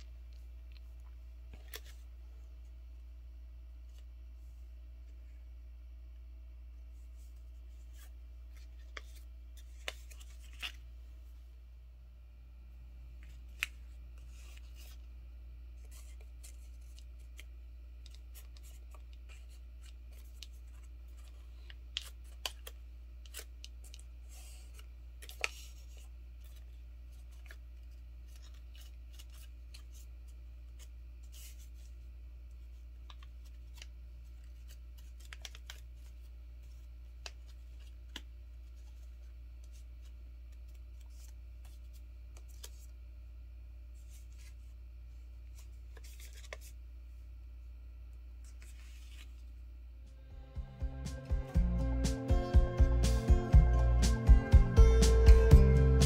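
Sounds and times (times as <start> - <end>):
steady low hum: 0.0 - 56.0
paper being folded and creased: 7.2 - 10.8, 15.8 - 32.0, 32.6 - 42.9, 45.5 - 46.8, 48.4 - 49.5.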